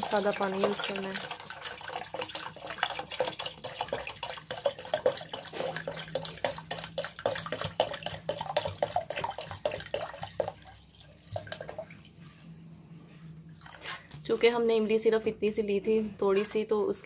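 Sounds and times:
water splashing into metal pot: 0.0s - 12.6s.

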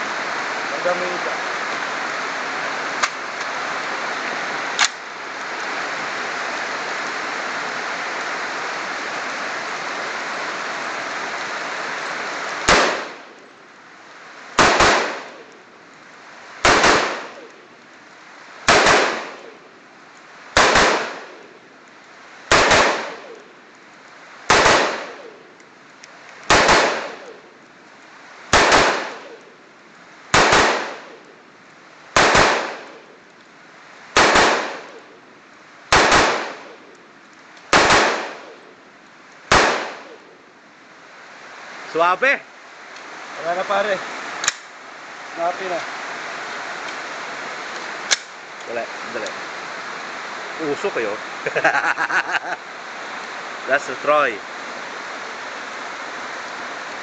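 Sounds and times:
steady rain hiss: 0.0s - 57.0s
rifle shots: 12.6s - 13.2s, 14.6s - 15.4s, 16.6s - 17.5s, 18.7s - 19.6s, 20.6s - 21.4s, 22.5s - 23.4s, 24.5s - 25.3s, 26.5s - 27.4s, 28.5s - 29.4s, 30.3s - 31.2s, 32.2s - 33.0s, 34.2s - 35.0s, 35.9s - 36.8s, 37.7s - 38.6s, 39.5s - 40.2s.

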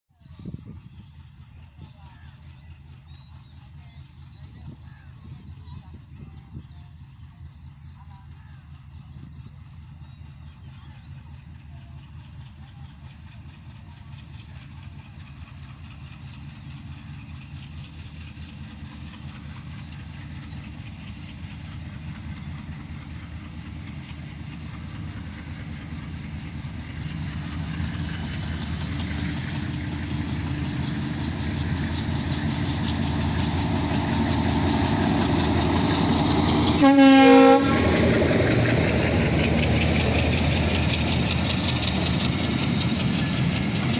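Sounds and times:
diesel locomotive engine: 0.1s - 43.9s
train coaches rolling on rails: 0.2s - 43.9s
train horn blast: 36.7s - 38.1s.

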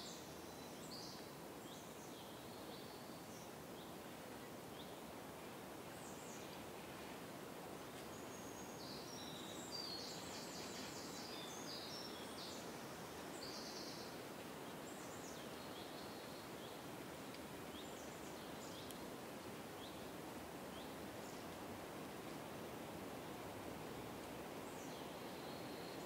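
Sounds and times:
wind in trees: 0.0s - 26.0s
small birds chirping: 7.9s - 19.1s.

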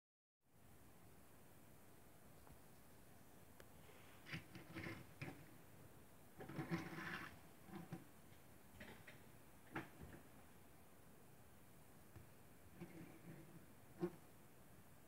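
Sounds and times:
toy car wheels rolling on wood: 4.2s - 5.5s, 6.4s - 8.1s.

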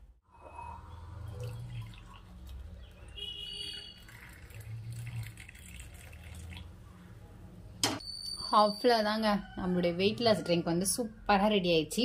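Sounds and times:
water pouring into a glass: 0.7s - 6.8s.

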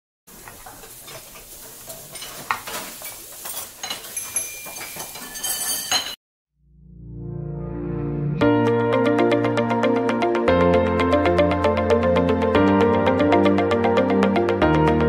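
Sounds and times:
food sizzling: 0.3s - 5.2s
metal utensils scraping a pan: 0.4s - 6.2s
sharp metal clinks: 3.5s - 6.2s.

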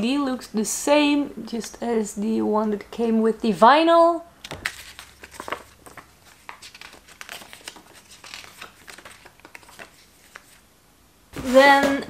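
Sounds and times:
paper rustling and crinkling: 4.4s - 10.6s, 11.4s - 12.0s.

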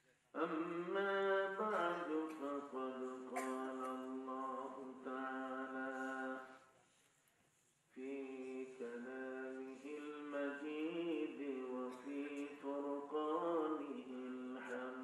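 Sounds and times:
man chanting melodically: 8.0s - 15.0s.

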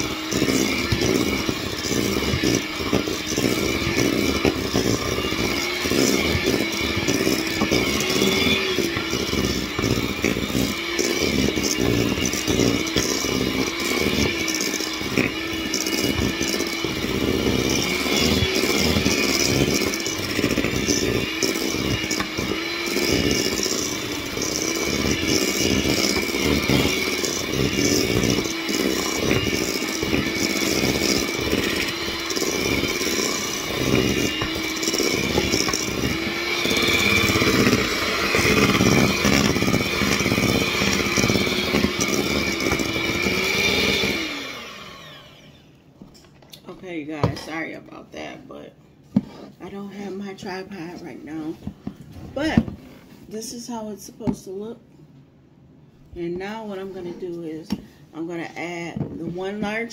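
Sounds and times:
electric hand mixer humming: 0.0s - 45.8s.

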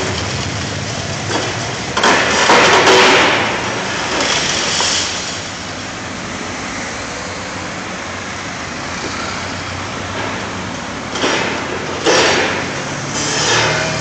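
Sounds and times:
diesel engine running: 0.0s - 14.0s
concrete being crushed: 1.2s - 5.4s.

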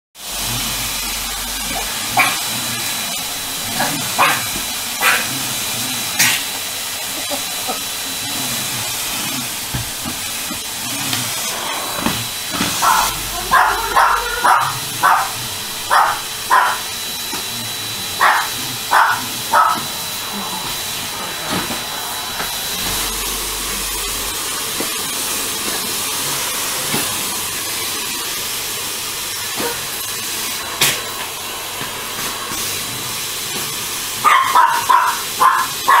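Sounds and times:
vacuum cleaner running: 0.2s - 36.0s
small dog barking: 2.1s - 2.5s, 3.8s - 5.3s, 12.8s - 16.9s, 18.2s - 19.9s, 34.2s - 36.0s.

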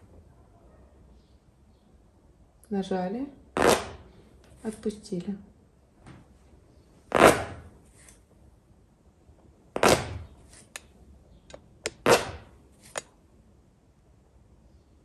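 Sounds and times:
palette knife scratching canvas: 3.6s - 4.0s, 7.1s - 8.2s, 9.8s - 10.8s, 11.9s - 13.0s.

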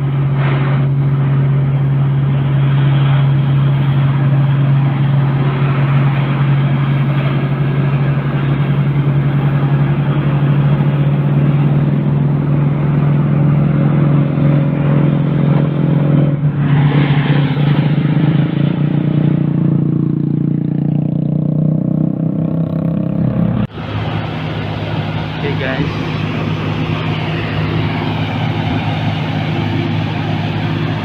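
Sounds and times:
road and wind noise: 0.0s - 31.0s
vehicle engine drone: 0.0s - 31.0s.

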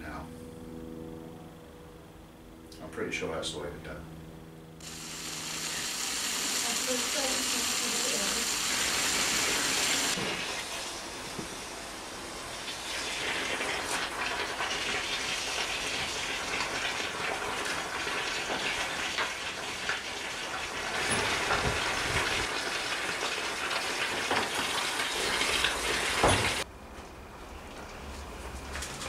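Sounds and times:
steam hissing: 4.8s - 26.6s.

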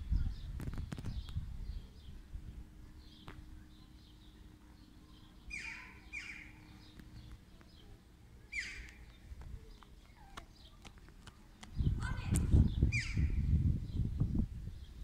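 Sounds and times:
faint bird chirps: 3.0s - 10.8s.

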